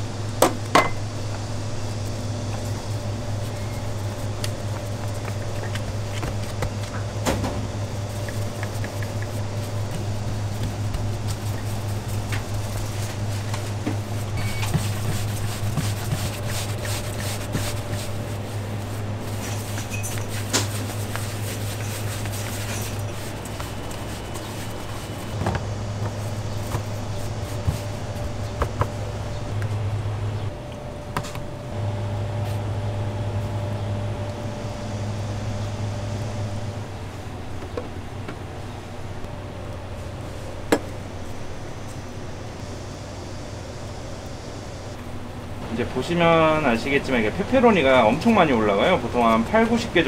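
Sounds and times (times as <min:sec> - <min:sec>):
kitchen machinery humming: 0:00.0 - 0:50.0
knocks and clicks of food preparation: 0:00.4 - 0:01.0, 0:28.5 - 0:29.0, 0:40.7 - 0:40.9.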